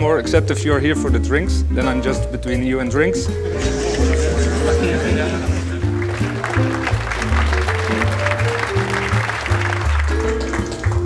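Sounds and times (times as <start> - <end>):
background music with bass line: 0.0 - 11.0
light applause: 3.6 - 11.0.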